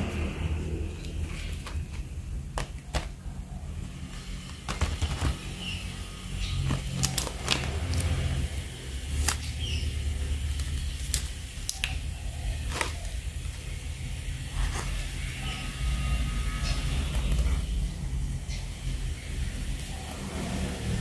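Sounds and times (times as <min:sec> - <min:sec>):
plastic packaging clicks and crinkles: 0:01.0 - 0:03.3, 0:04.3 - 0:05.7, 0:06.5 - 0:08.4, 0:10.3 - 0:13.8.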